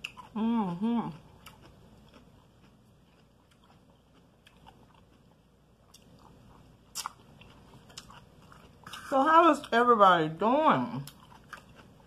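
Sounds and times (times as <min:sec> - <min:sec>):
person chewing: 0:00.0 - 0:09.3, 0:11.0 - 0:12.0.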